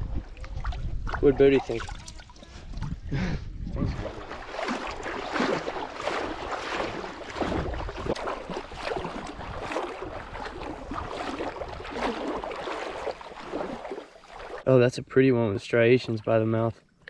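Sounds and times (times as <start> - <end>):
water splashing around wading legs: 0.0 - 3.0, 3.8 - 14.7.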